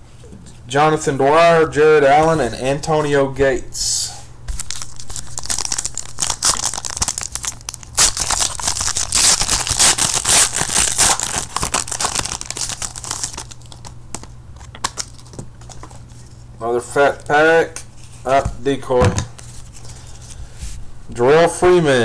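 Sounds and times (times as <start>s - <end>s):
foil wrapper tearing and crinkling: 4.6s - 16.0s.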